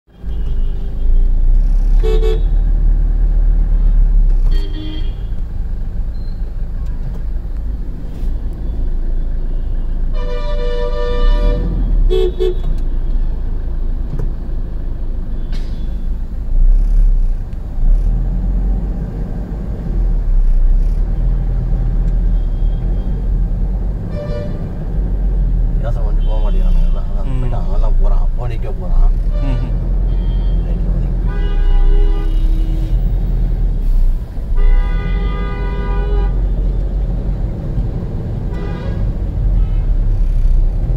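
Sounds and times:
vehicle horns honking: 0.2s - 2.6s, 3.8s - 5.4s, 9.5s - 12.8s, 24.0s - 24.8s, 26.0s - 27.4s, 29.1s - 33.2s, 34.5s - 36.8s, 38.5s - 40.0s
low car rumble: 11.3s - 40.9s.

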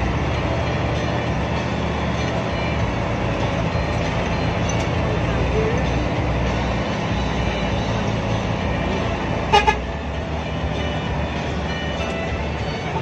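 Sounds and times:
bus engine and road drone: 0.0s - 13.0s
horn short toots: 9.5s - 9.9s.

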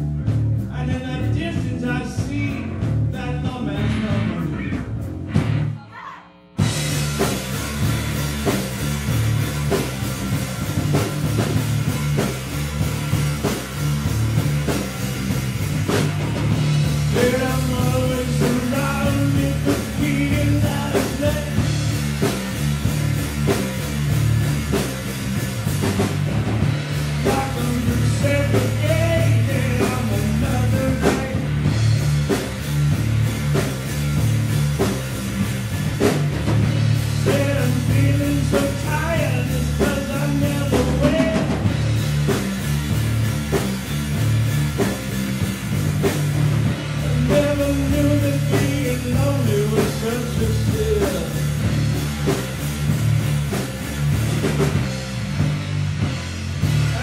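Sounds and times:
bass guitar: 0.0s - 57.0s
drum kit: 0.0s - 57.0s
man singing: 0.7s - 4.9s, 17.0s - 21.8s, 27.2s - 31.7s, 37.1s - 41.8s, 46.8s - 52.4s
electric guitar: 1.0s - 57.0s.

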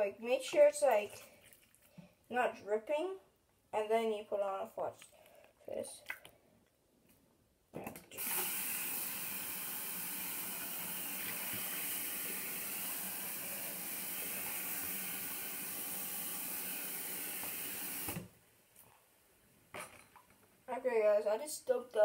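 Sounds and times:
faucet running into sink: 8.2s - 18.2s.

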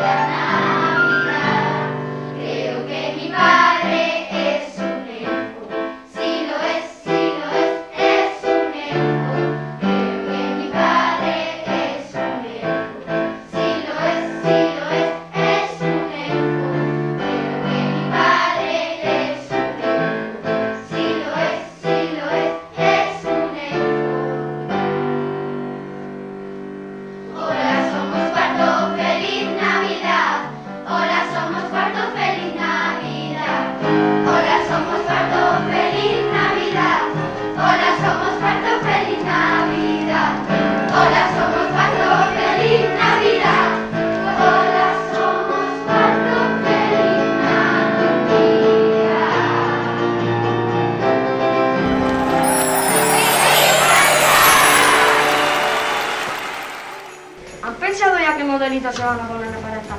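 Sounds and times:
children's choir singing: 0.0s - 25.2s, 27.3s - 50.1s, 51.8s - 57.6s
instrumental accompaniment: 51.8s - 57.8s.

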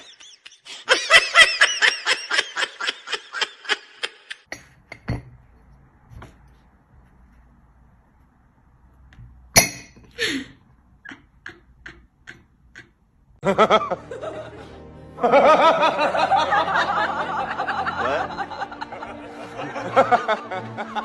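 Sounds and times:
laughter: 0.0s - 4.4s, 13.4s - 21.0s
background music: 13.4s - 21.0s.

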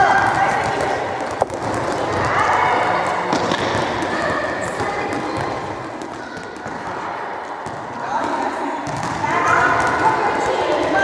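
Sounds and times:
balls bouncing on hall floor: 0.0s - 11.0s
children's voices: 4.0s - 7.2s.

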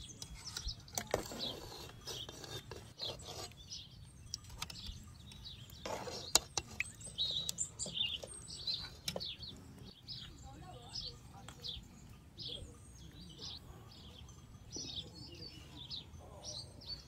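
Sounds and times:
metal ladle scraping pot: 0.0s - 4.9s, 5.6s - 9.3s
birds chirping: 0.0s - 17.0s.

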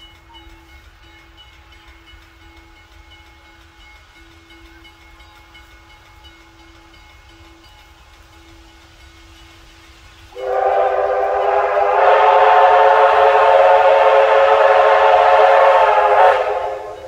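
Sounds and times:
steam whistle blast: 10.4s - 17.0s.

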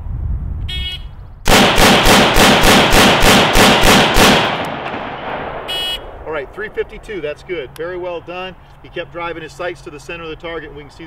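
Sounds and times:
rapid rifle shots: 1.5s - 5.7s
gunshot echo: 1.5s - 6.7s.

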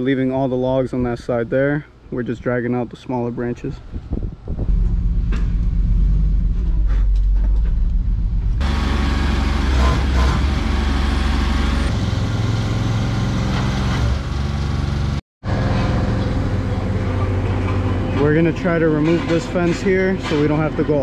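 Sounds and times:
large truck engine running: 4.6s - 20.8s
loud hissy engine noise: 8.6s - 18.2s.

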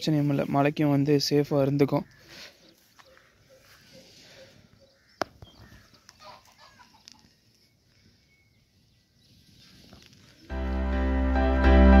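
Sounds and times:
chickens clucking: 2.3s - 7.6s.

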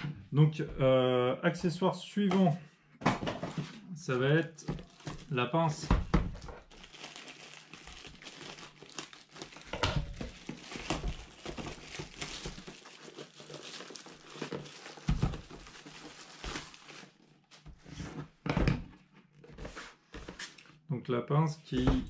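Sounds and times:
plastic crinkling: 4.3s - 17.6s
plastic shrink-wrap tearing: 4.7s - 5.4s, 6.6s - 17.3s.

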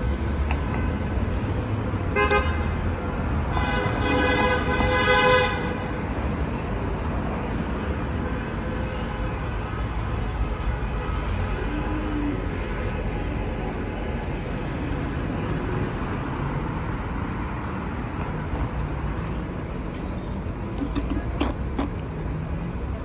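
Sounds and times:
street traffic passing: 0.0s - 23.0s
car horn: 2.1s - 2.7s, 3.5s - 5.8s.

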